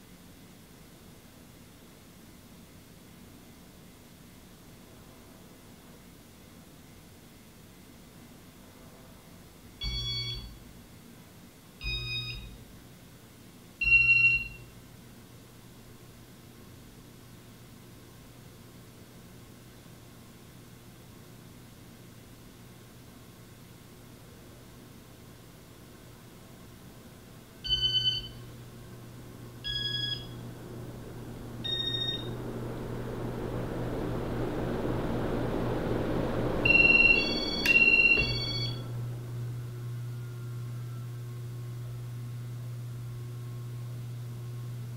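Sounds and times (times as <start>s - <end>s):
short electronic beeps: 9.8s - 10.5s, 11.8s - 12.6s, 27.7s - 28.4s, 29.6s - 30.4s, 31.6s - 32.4s, 36.6s - 38.8s
low hum: 27.5s - 44.9s
rush of air from fan blades: 28.4s - 39.8s.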